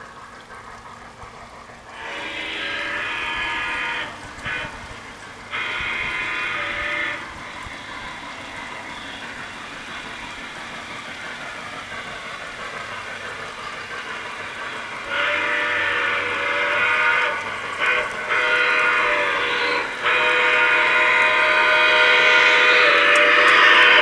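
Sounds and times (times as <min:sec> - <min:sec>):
steam locomotive running: 0:00.0 - 0:24.0
steam whistle blasts: 0:01.9 - 0:10.8, 0:14.6 - 0:24.0.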